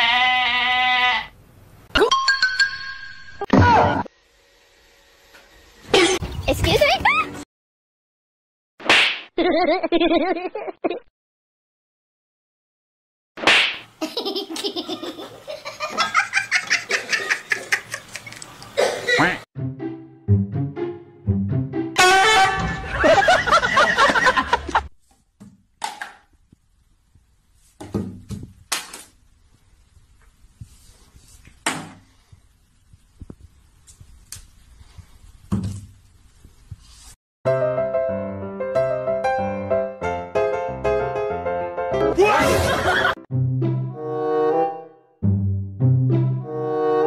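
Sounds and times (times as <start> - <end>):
person laughing hard: 9.4 - 11.0, 22.6 - 24.9, 42.2 - 43.2
piano music: 19.6 - 23.2, 37.5 - 42.2, 43.0 - 47.0.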